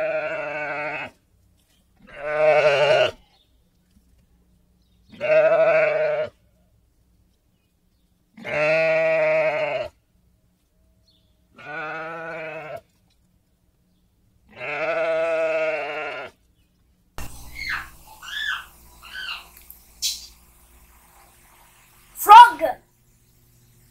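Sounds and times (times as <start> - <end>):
sheep bleating: 0.0 - 1.2, 2.0 - 3.2, 5.1 - 6.4, 8.4 - 10.0, 11.6 - 12.8, 14.5 - 16.4.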